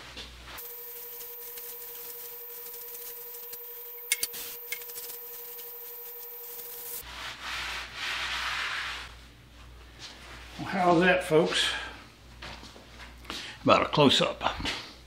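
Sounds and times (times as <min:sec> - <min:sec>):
faint humming tone: 0:00.5 - 0:07.0.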